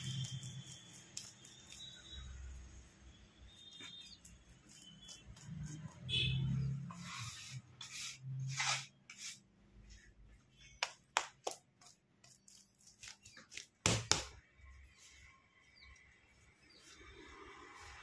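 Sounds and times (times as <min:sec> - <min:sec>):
hands rubbing and slapping dough: 0:00.0 - 0:02.2, 0:03.6 - 0:15.1.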